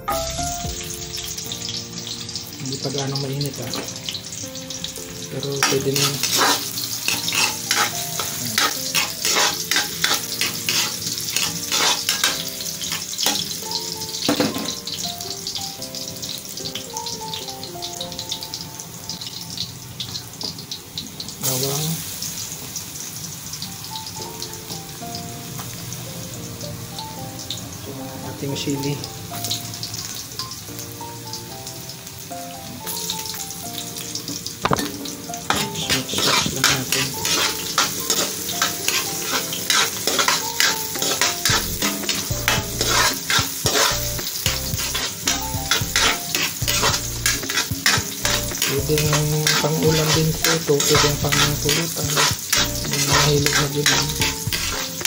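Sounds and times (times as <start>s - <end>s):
background music with held notes: 0.0s - 22.5s, 23.1s - 55.0s
garlic sizzling in hot oil: 0.0s - 55.0s
metal spatula scraping wok: 5.5s - 13.6s, 34.8s - 55.0s.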